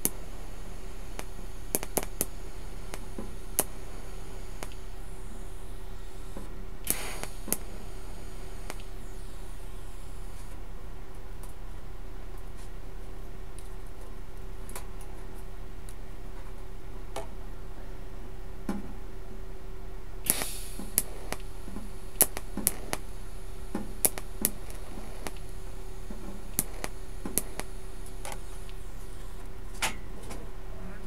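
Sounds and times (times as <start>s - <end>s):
welding crackle: 0.0s - 11.6s, 20.2s - 29.8s
high welding hiss: 0.0s - 11.7s, 20.2s - 31.0s
steady hum: 0.0s - 31.0s
sharp clicks: 1.1s - 4.0s, 4.6s - 5.5s, 6.2s - 10.6s, 20.3s - 29.5s.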